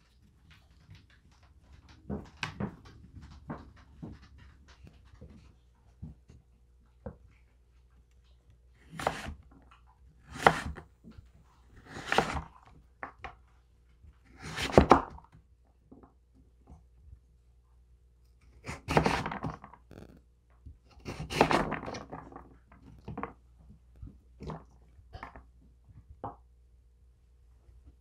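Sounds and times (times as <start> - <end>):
knife scraping board: 8.8 - 9.4, 10.3 - 10.8, 11.8 - 12.5, 14.4 - 14.9, 18.6 - 20.2, 21.0 - 22.0
knife chopping on wooden board: 8.9 - 9.4, 10.3 - 10.8, 11.8 - 12.4, 14.4 - 15.0, 18.6 - 20.2, 21.0 - 21.9.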